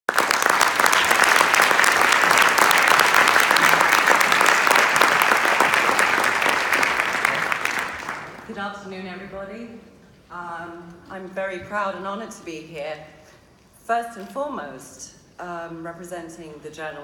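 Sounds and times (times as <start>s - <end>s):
audience applauding: 0.1s - 8.5s.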